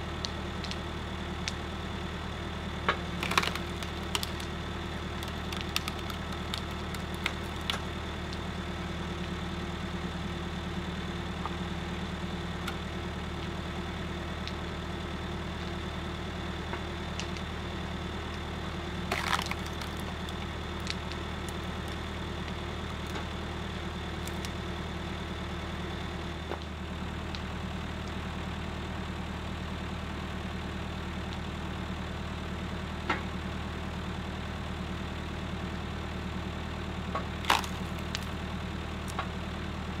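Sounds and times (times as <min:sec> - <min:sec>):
tractor engine idling: 0:00.0 - 0:40.0
wood splitting cracks: 0:02.9 - 0:08.4, 0:18.3 - 0:23.4, 0:24.2 - 0:24.6, 0:37.2 - 0:38.4.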